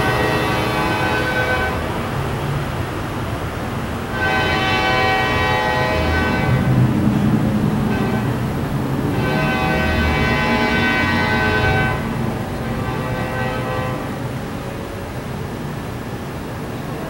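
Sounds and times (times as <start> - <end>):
train air horn blasts: 0.0 - 2.2, 4.0 - 15.2
train rumbling: 0.0 - 17.0.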